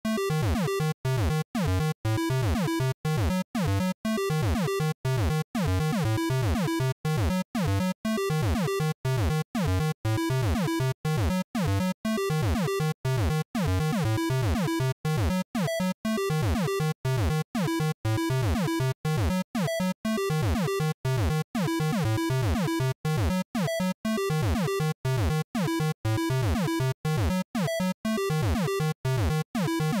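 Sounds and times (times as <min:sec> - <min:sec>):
chiptune music: 0:00.1 - 0:30.0.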